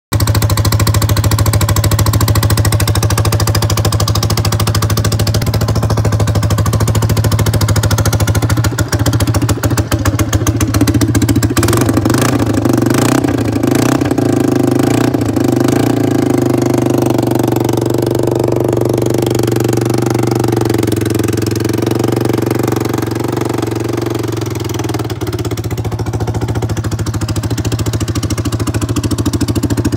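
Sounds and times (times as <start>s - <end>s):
motorcycle engine idling: 0.1s - 29.9s.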